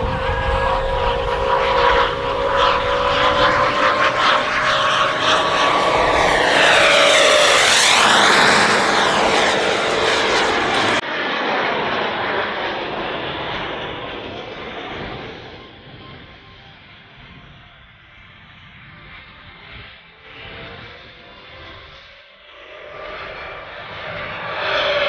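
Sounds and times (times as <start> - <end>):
rushing jet noise: 0.0 - 15.1
jet turbine whine: 0.0 - 25.0.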